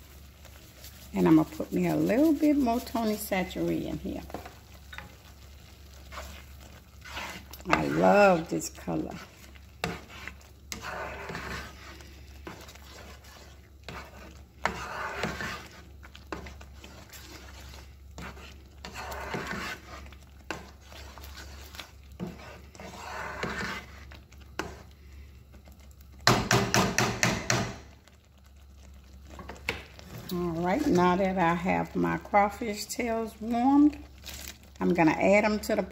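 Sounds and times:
thick sauce bubbling: 0:00.0 - 0:32.2
spatula scraping a pan: 0:00.0 - 0:35.9
spatula knocking against a pan: 0:26.3 - 0:27.8.

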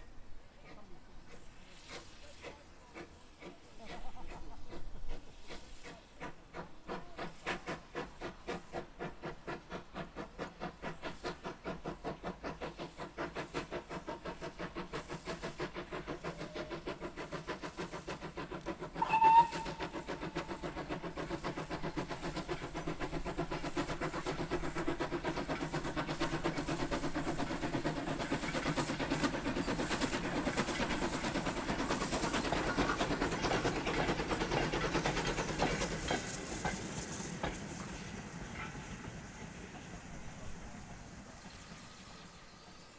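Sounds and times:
steam locomotive exhaust beats: 0:00.0 - 0:42.9
steam whistle toot: 0:19.0 - 0:20.1.

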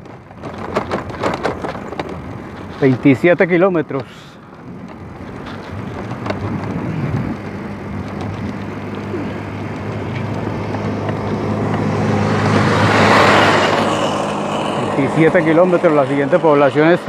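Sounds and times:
vehicle engine passing: 0:01.4 - 0:17.0.

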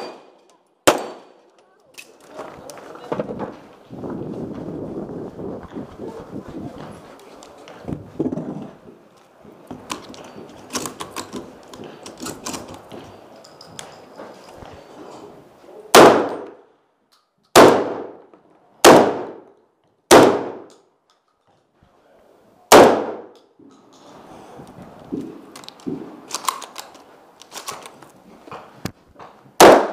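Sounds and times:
shotgun shots: 0:00.0 - 0:01.4, 0:15.9 - 0:16.6, 0:17.5 - 0:18.2, 0:18.8 - 0:19.5, 0:20.1 - 0:20.7, 0:22.7 - 0:23.4, 0:29.6 - 0:29.9
shotgun shells being loaded: 0:09.8 - 0:14.6, 0:25.5 - 0:28.1.

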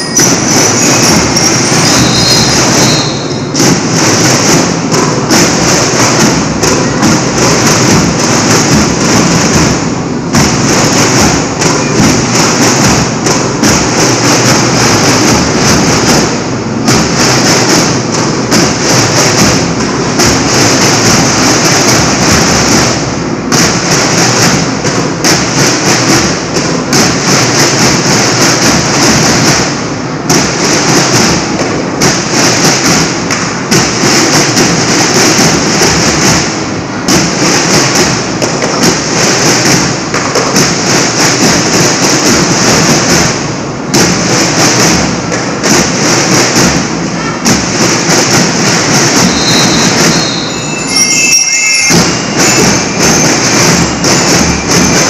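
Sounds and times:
bell lyres ringing: 0:00.0 - 0:03.6, 0:49.4 - 0:55.0
heavy drumbeats: 0:00.0 - 0:55.0.

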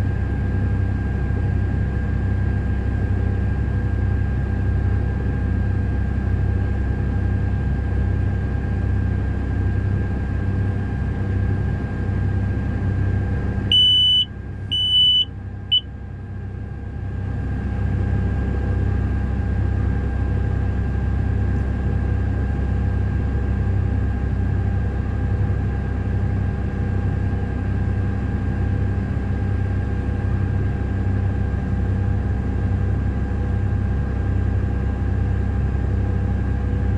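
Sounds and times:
diesel engine droning: 0:13.7 - 0:15.8
faint steady whine: 0:13.7 - 0:15.8.

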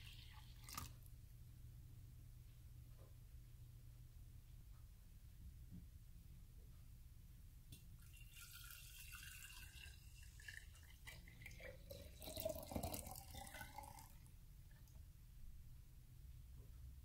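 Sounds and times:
juice trickling into glass: 0:08.0 - 0:14.3.

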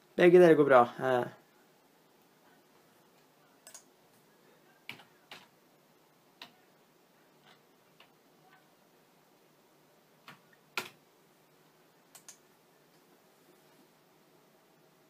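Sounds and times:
faint sharp clicks: 0:12.1 - 0:13.0.

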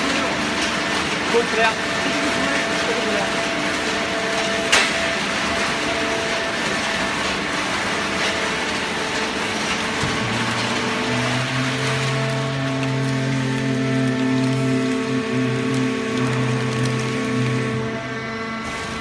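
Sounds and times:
baler mechanical drone: 0:00.0 - 0:19.0.

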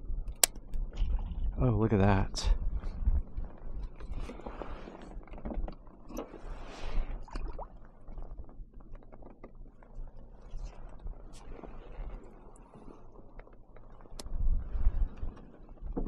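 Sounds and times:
steady low rumble: 0:00.0 - 0:04.5
water sloshing and splashing: 0:00.3 - 0:01.6, 0:02.7 - 0:16.0.

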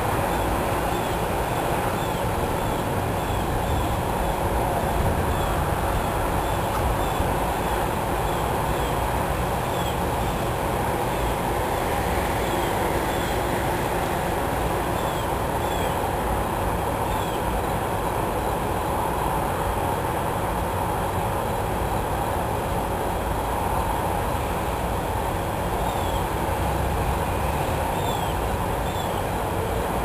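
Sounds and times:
steady rushing noise: 0:00.0 - 0:30.0.

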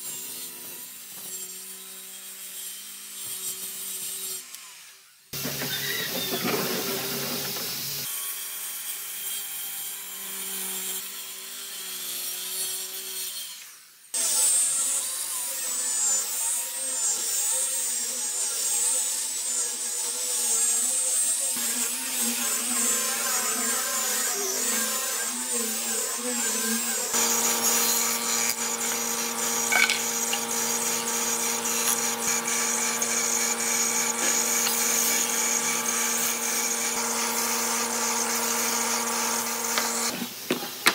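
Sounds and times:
power tool on wooden board: 0:00.0 - 0:40.9
angle grinder sanding wood: 0:17.0 - 0:40.8
jointer humming: 0:27.1 - 0:40.1.

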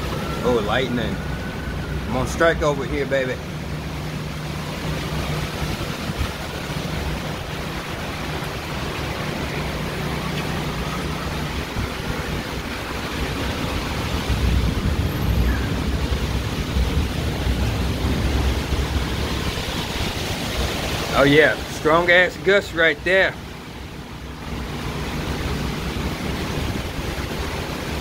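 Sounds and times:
heavy rain pouring: 0:00.0 - 0:28.0
wind gusts buffeting microphone: 0:03.4 - 0:22.0, 0:24.2 - 0:28.0.

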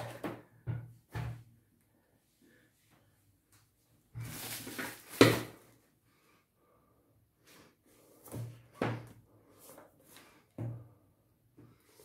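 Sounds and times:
plastic wrapping rustling: 0:04.2 - 0:05.6.

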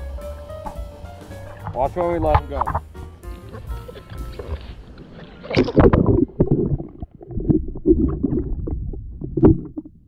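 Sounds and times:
underwater sloshing and gurgling: 0:01.2 - 0:10.0
splash: 0:04.3 - 0:08.5.

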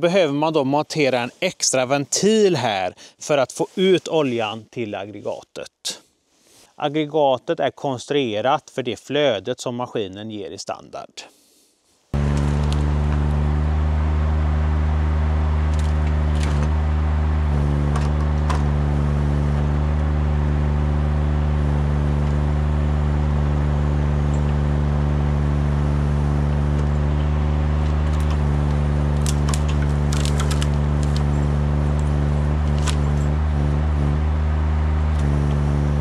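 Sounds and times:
forestry machine engine running: 0:12.2 - 0:36.0
sharp clicks: 0:26.7 - 0:31.3, 0:31.9 - 0:33.3.

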